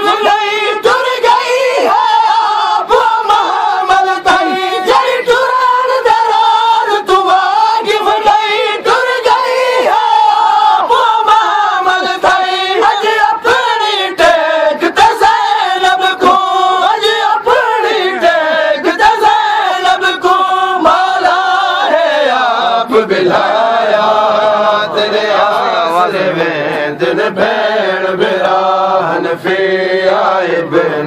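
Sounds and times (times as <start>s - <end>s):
men chanting a lament: 0.0s - 31.0s.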